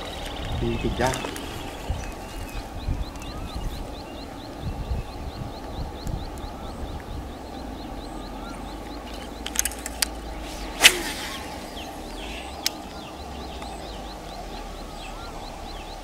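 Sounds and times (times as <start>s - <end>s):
steady low rumble: 0.0s - 16.0s
sharp snap: 9.5s - 12.8s
fast high chirping: 10.2s - 13.0s.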